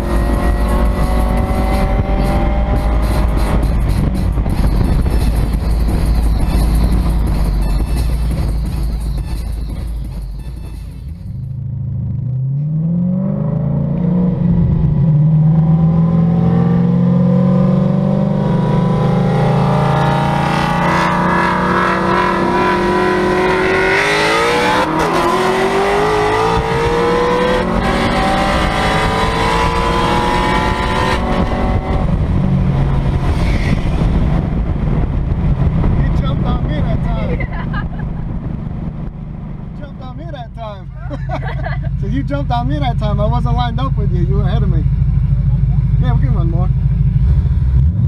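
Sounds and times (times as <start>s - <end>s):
wind rushing: 0.0s - 8.9s, 19.2s - 39.8s
car engine accelerating hard: 0.0s - 10.2s, 11.5s - 48.0s.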